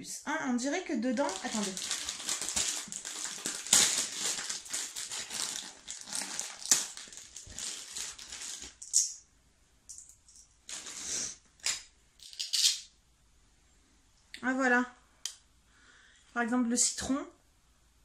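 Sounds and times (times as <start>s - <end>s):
plastic packaging crinkling: 1.1s - 9.2s, 10.3s - 11.1s.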